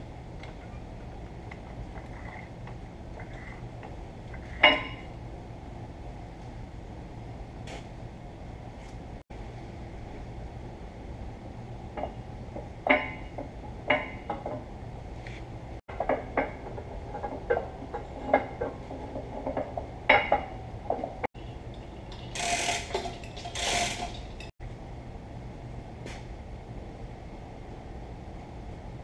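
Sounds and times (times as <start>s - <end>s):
metal tools clinking: 21.7s - 24.5s.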